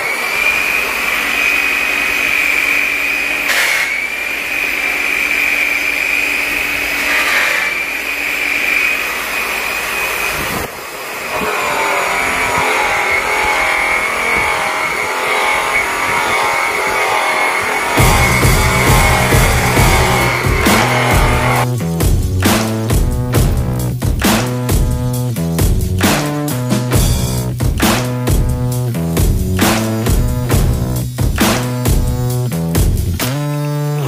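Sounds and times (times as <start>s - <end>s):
power buffer high whine: 0.0s - 21.7s.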